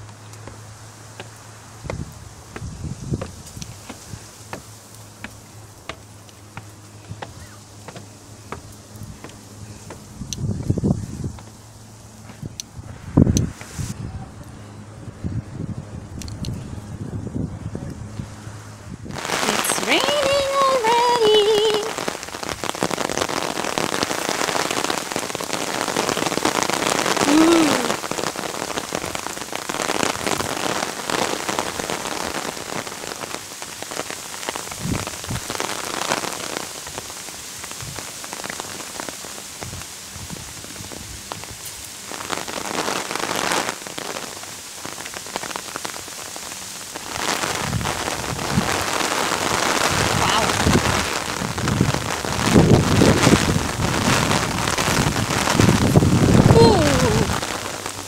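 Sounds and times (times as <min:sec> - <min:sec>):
rain pattering on umbrella: 0:00.0 - 0:14.0, 0:19.1 - 0:58.0.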